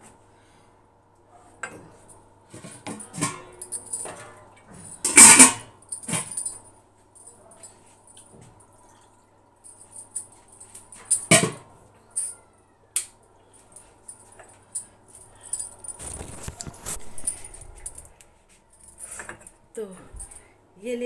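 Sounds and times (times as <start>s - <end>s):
light metallic jingling: 9.6s - 11.3s, 13.4s - 20.5s
phone rustling and bumping: 16.0s - 17.6s.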